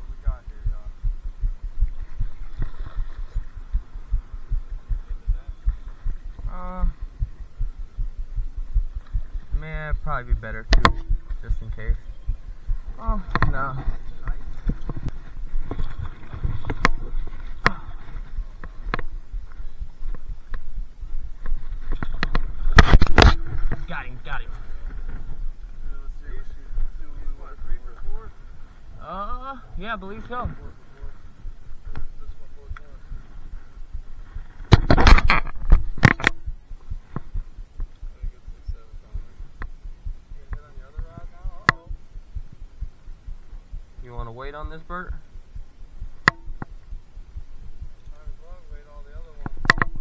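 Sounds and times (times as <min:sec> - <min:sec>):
faint low thudding: 0:00.0 - 0:50.0
low rumble: 0:00.0 - 0:50.0
sharp knocks: 0:10.6 - 0:11.4, 0:46.2 - 0:46.8
camera handling clicks and knocks: 0:49.5 - 0:50.0.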